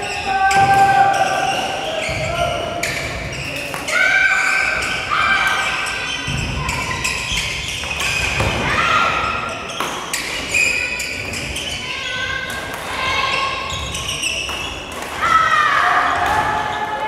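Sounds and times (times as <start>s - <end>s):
rackets striking shuttlecocks: 4.8s - 10.6s, 14.0s - 15.4s
shoes squeaking on wooden floor: 13.2s - 15.0s.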